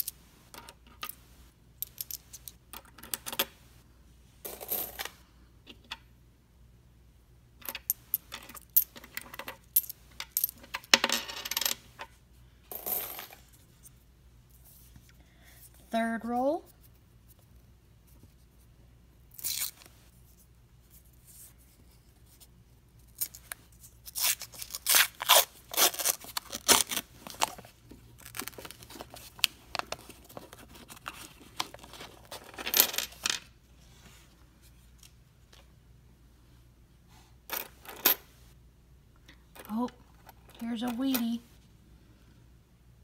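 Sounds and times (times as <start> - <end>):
paper wrapper ripping and crinkling: 24.1 - 27.6, 28.2 - 29.2.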